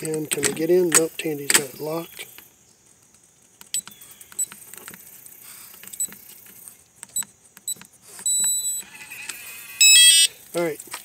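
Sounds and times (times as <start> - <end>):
keypad button clicks: 3.6 - 4.6
long steady beep: 3.7 - 4.6, 7.1 - 8.9, 9.8 - 10.3
short high beeps: 8.2 - 8.9, 9.8 - 10.3.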